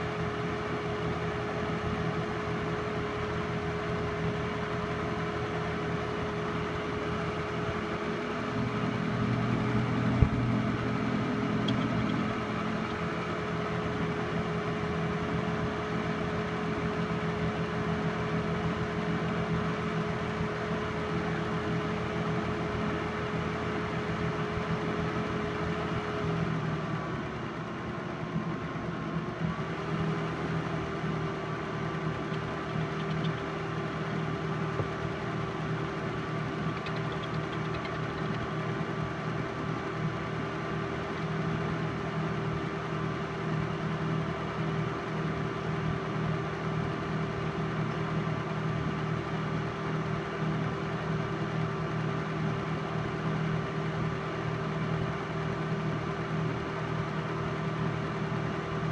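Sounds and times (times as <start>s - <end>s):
projector motor and fan hum: 0.0s - 58.9s
film transport flutter: 32.0s - 34.4s, 36.5s - 38.8s.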